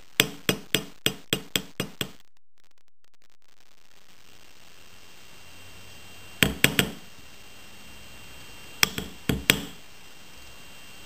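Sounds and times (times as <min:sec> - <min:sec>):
hammer tapping steel block: 0:00.2 - 0:02.2, 0:06.4 - 0:07.0, 0:08.8 - 0:09.8.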